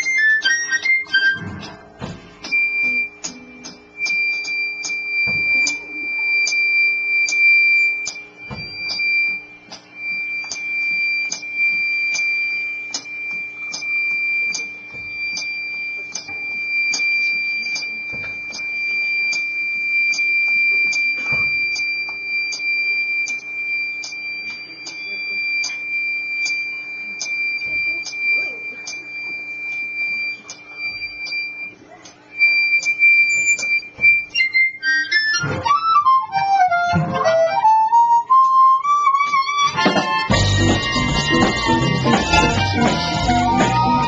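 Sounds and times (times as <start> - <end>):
blues harmonica: 0.0 - 6.4, 32.4 - 44.0.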